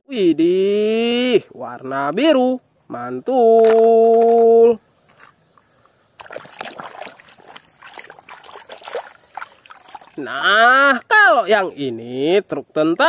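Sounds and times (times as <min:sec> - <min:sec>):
water splashing and sloshing: 0:03.6 - 0:11.2.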